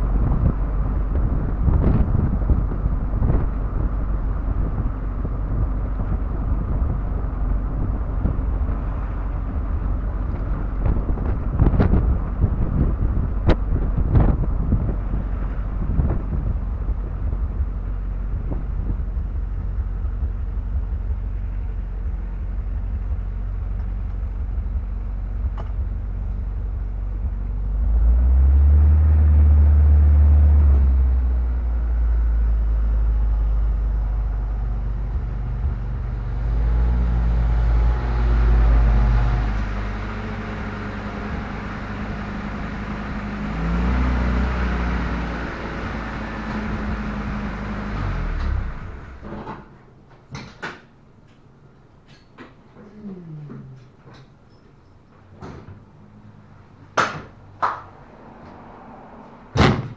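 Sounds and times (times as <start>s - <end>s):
wind fluttering on microphone: 0.0s - 28.5s, 34.1s - 43.1s
car engine running: 0.0s - 49.3s.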